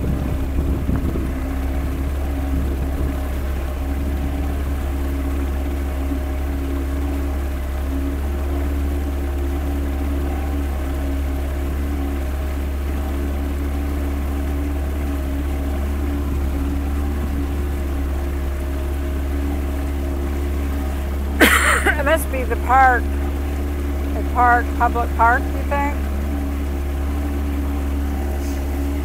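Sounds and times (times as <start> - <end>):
outboard motor running: 0.0 - 29.0
wake rushing: 0.0 - 29.0.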